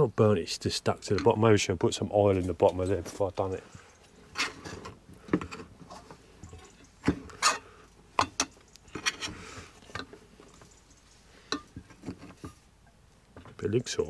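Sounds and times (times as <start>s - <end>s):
utensil scraping pot: 4.1s - 12.7s.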